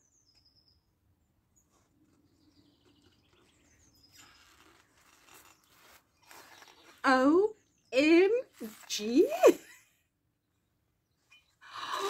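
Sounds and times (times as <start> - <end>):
faint rustling handling noises: 1.6 - 7.1.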